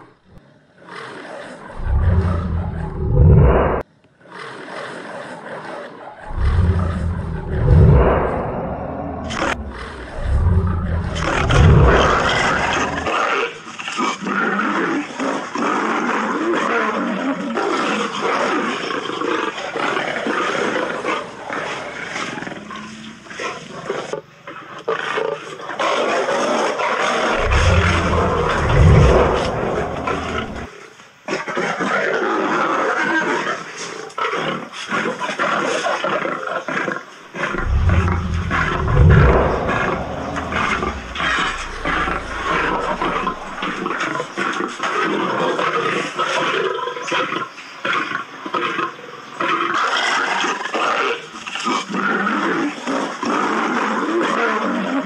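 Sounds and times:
lions roaring: 0:01.1 - 0:03.8, 0:06.2 - 0:13.5, 0:27.1 - 0:30.7, 0:37.4 - 0:44.0
deep rumble: 0:01.8 - 0:03.8, 0:06.3 - 0:13.2, 0:27.3 - 0:30.7, 0:37.5 - 0:43.9.

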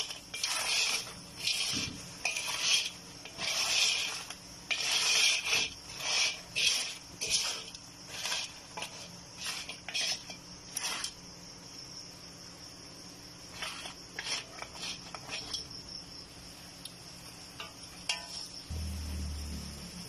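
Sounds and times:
wooden spatula scraping metal pan: 0:00.0 - 0:11.3, 0:13.4 - 0:15.8, 0:17.6 - 0:18.7
steady high-pitched trill: 0:18.1 - 0:20.0.

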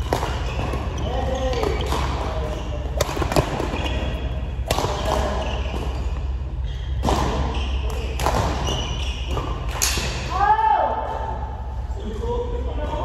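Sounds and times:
steady low hum: 0:00.0 - 0:13.0
short high squeaks: 0:05.2 - 0:09.6.

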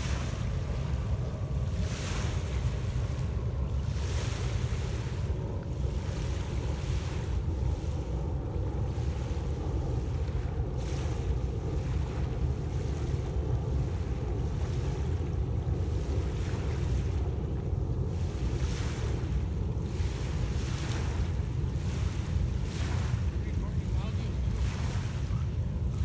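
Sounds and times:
waves washing onto pebble shore: 0:00.0 - 0:08.2, 0:18.3 - 0:26.0
wind rumble on microphone: 0:00.0 - 0:26.0.

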